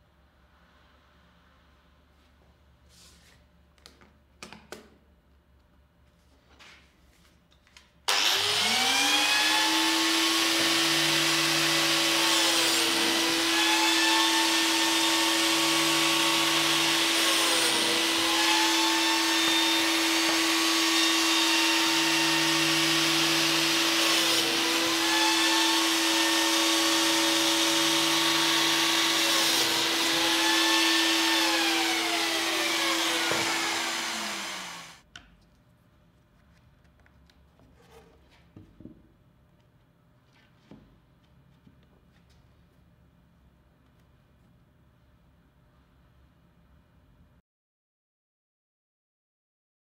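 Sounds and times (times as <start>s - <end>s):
biscuit joiner motor whine: 8.1s - 35.0s
dust extraction hum: 8.1s - 35.0s.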